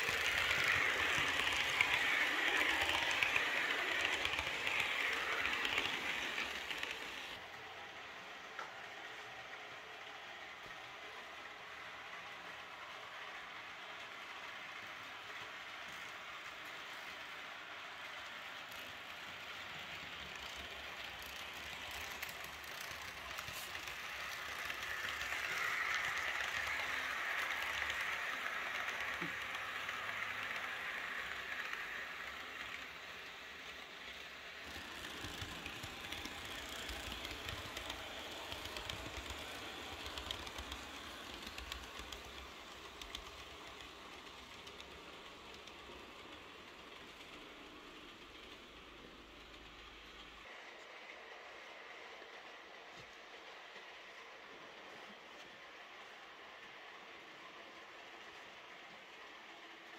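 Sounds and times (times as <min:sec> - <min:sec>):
clicking over rail joints: 0:00.0 - 0:07.4, 0:19.8 - 0:50.4
model train wheels on rails: 0:00.0 - 0:59.9.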